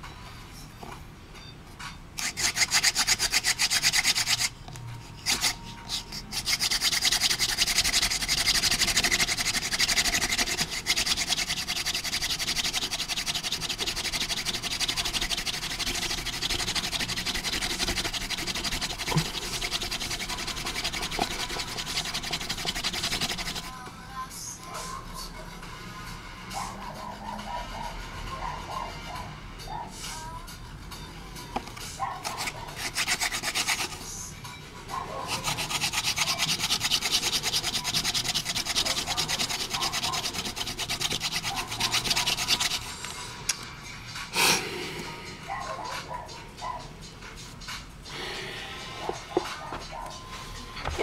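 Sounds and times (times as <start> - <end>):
wooden spindle rubbing on board: 2.2 - 23.8, 32.2 - 34.1, 35.1 - 43.0.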